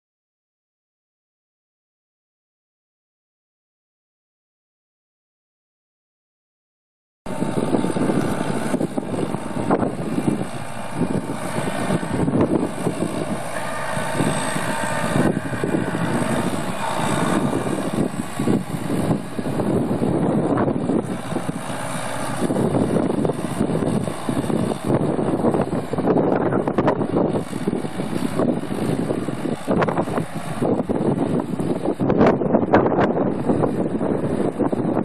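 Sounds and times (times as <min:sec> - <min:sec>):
tractor diesel engine running: 0:07.3 - 0:35.0.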